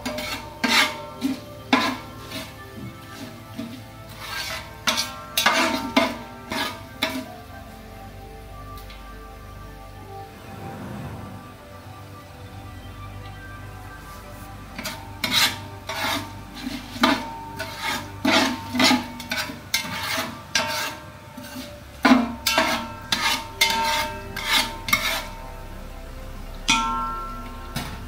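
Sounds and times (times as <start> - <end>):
steel spoon scraping a metal pot: 0.0 - 7.4, 14.7 - 25.7
metallic clang: 26.7 - 28.0.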